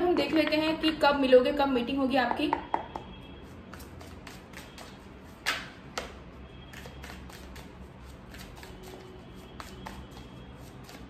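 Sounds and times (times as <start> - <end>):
cards being shuffled: 6.7 - 11.0.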